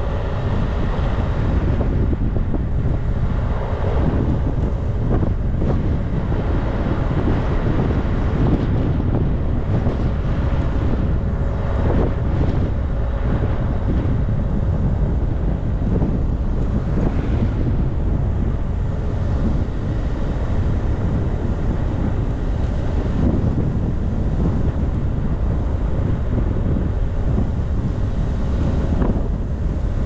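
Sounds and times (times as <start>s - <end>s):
road and engine rumble: 0.0s - 30.0s
wind buffeting microphone: 0.0s - 30.0s.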